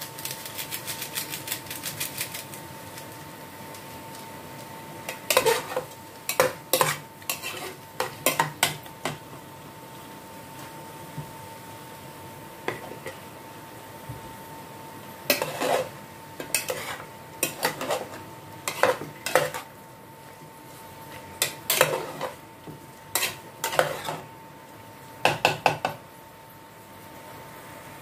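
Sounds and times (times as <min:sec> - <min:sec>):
metal spoon clanking in a pot: 0:05.1 - 0:09.2.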